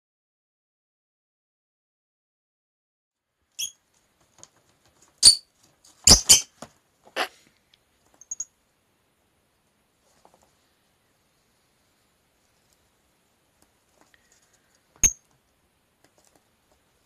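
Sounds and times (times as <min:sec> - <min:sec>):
bird chirping: 0:03.6 - 0:03.8, 0:05.2 - 0:06.5, 0:08.2 - 0:08.5.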